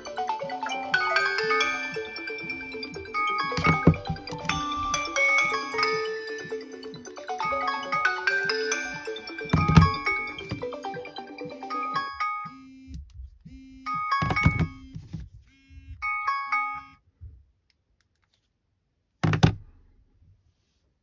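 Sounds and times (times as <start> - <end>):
smartphone alarm chiming: 0.8 - 17.0.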